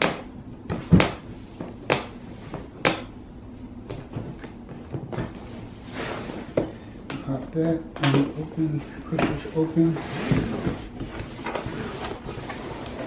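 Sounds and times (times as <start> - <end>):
cardboard sliding: 9.8 - 13.0.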